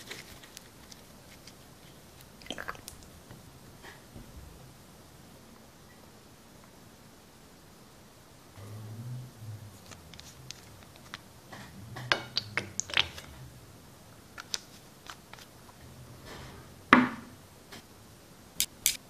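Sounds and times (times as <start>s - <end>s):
plastic tube clicking and crinkling: 12.0s - 13.4s, 14.4s - 15.5s.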